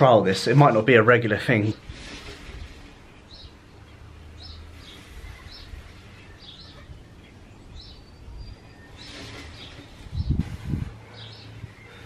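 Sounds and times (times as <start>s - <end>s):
small bird chirping: 3.2s - 12.0s.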